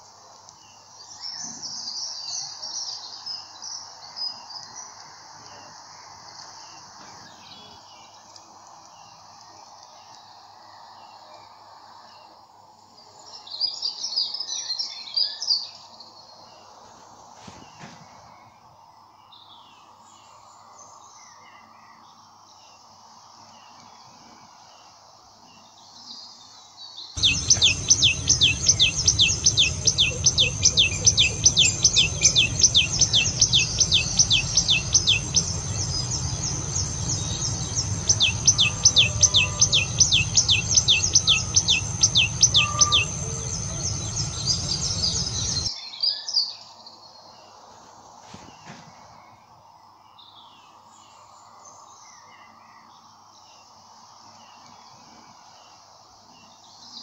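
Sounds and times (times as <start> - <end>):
low background noise: 0.0 - 57.0
faint bird chirps: 23.4 - 47.5
bird singing sharp repeated notes: 27.2 - 45.7.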